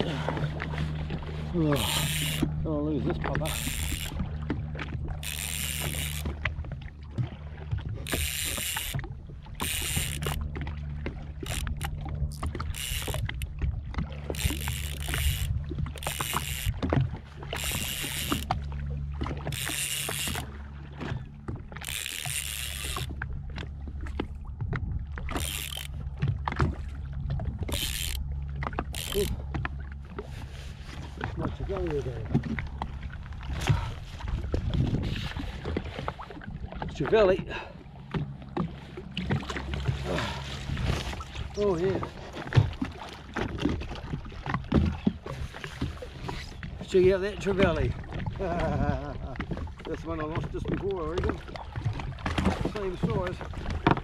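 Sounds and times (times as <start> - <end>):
jet ski engine idling: 0.0 - 8.4
water splashing against hull: 0.0 - 54.0.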